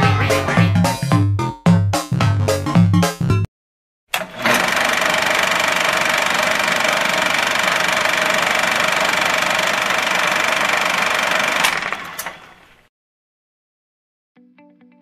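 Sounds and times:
film projector clattering: 4.1 - 12.6
projector whine: 4.2 - 12.4.

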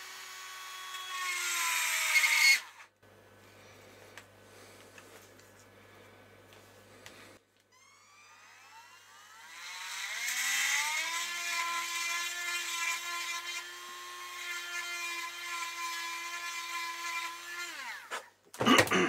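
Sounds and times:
rotary tool whining: 7.7 - 18.2.

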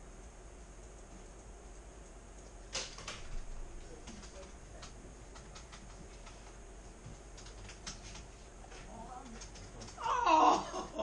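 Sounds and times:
low room hum: 0.0 - 11.0
typing on computer keyboard: 2.4 - 6.6, 7.3 - 8.3, 9.2 - 10.0.

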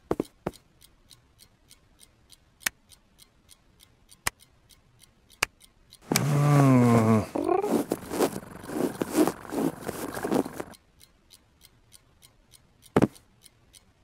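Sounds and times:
soft steady ticking: 0.0 - 14.0
low drawn-out vocal groan: 6.1 - 8.0.

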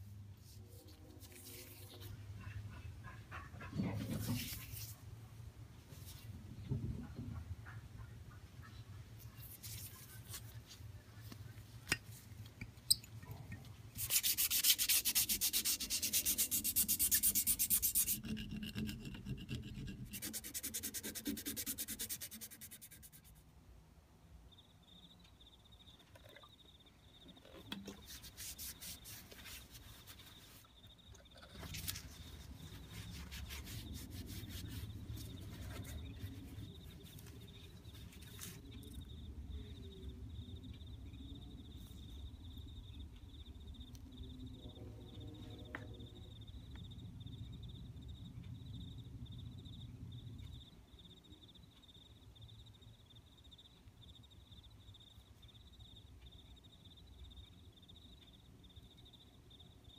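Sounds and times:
paper towel rubbing: 14.0 - 23.3, 27.9 - 30.7, 31.6 - 38.6
sanding and scraping on steel: 14.0 - 23.4, 27.8 - 30.7, 31.6 - 38.6.

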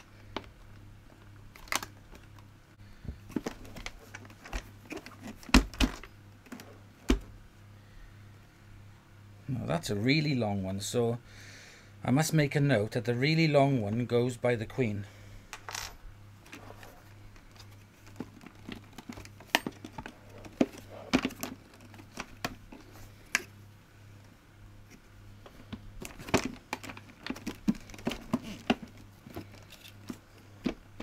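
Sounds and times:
plastic parts clicking and knocking: 3.3 - 7.3, 17.3 - 23.5, 25.4 - 31.0.

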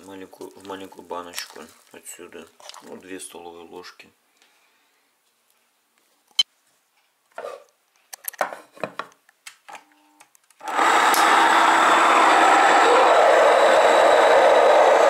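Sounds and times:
electric grain mill grinding: 10.6 - 15.0.

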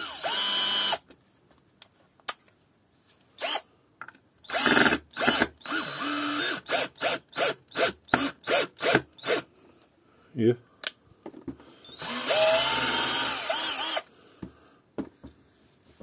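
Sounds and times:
cordless drill motor whirring: 0.0 - 1.0, 3.4 - 3.6, 4.4 - 9.5, 11.8 - 14.1.

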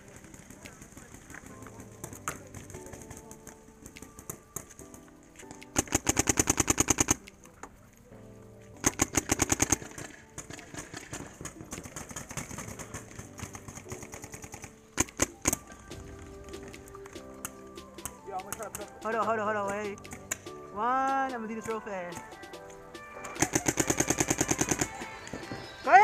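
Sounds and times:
paintball marker firing: 0.1 - 5.0, 5.6 - 7.5, 8.8 - 25.1.

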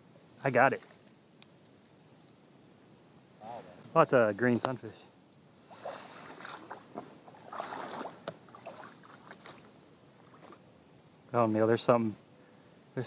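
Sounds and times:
high insect trill: 0.0 - 13.0
water splashing: 5.7 - 9.6.

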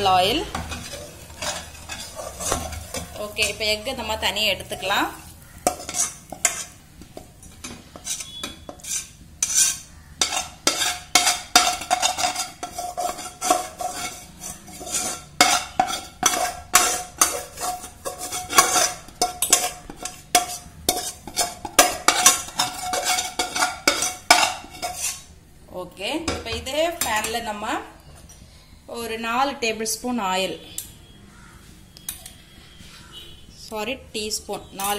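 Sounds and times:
metal spatula scraping pan: 0.0 - 25.4.

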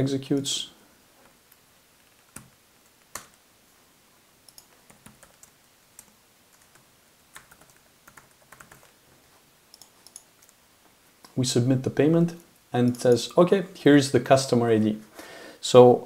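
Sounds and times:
keyboard typing: 2.0 - 3.4, 4.5 - 9.0, 9.7 - 10.6.

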